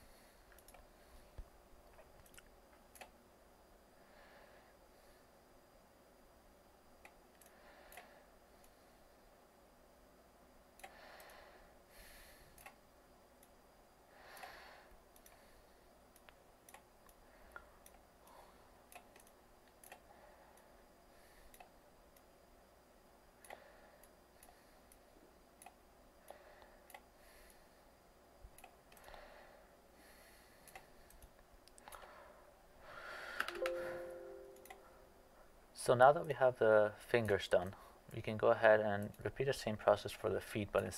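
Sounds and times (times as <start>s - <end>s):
computer mouse clicks: 0.5s - 0.9s, 2.0s - 3.2s, 14.4s - 15.4s, 16.1s - 18.0s, 18.9s - 20.7s, 21.5s - 22.3s, 25.6s - 27.1s, 33.4s - 33.8s.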